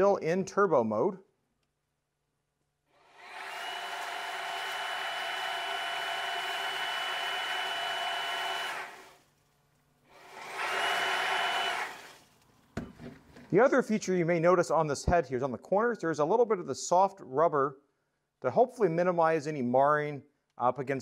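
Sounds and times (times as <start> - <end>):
stick vacuum motor whine: 3.1 - 9.2, 10.2 - 12.2.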